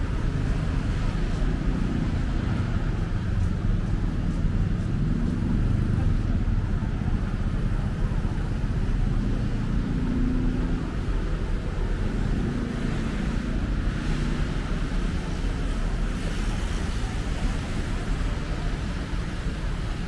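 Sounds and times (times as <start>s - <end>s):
road traffic noise: 0.0s - 20.0s.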